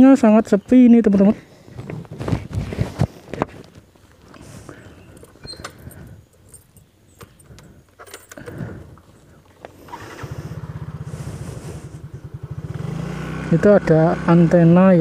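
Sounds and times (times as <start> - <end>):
scooter engine running: 8.4 - 15.0.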